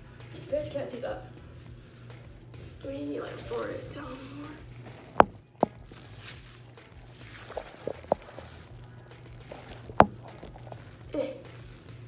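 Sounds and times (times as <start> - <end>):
low steady hum: 0.0 - 12.0
phone being handled taps: 5.0 - 5.8, 9.6 - 10.6.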